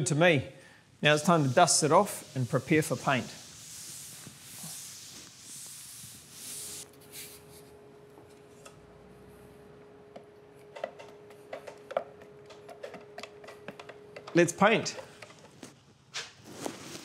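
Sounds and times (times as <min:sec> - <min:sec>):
faint steady hum: 0:00.0 - 0:16.0
paint roller clicking in tray: 0:10.7 - 0:15.6.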